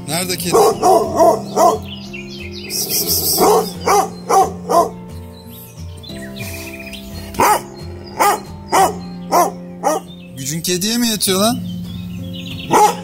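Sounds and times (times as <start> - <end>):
dog barking: 0.5 - 1.9, 2.9 - 5.0, 7.4 - 10.1, 12.7 - 13.0.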